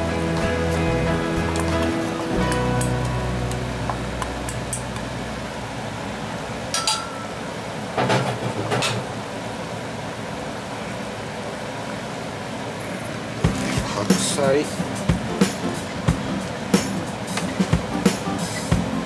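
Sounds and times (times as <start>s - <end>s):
bowl and chopsticks clinking pot: 6.7s - 7.4s
broth simmering and bubbling: 9.1s - 15.4s.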